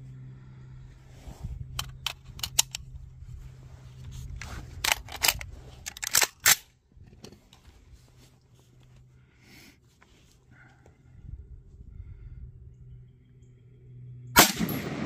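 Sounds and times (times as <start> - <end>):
rifle metallic clicks and clacks: 1.8 - 2.9, 4.8 - 7.4.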